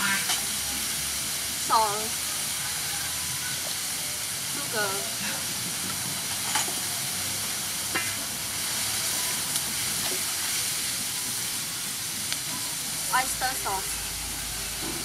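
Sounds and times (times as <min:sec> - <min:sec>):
food sizzling in a wok: 0:00.0 - 0:15.0.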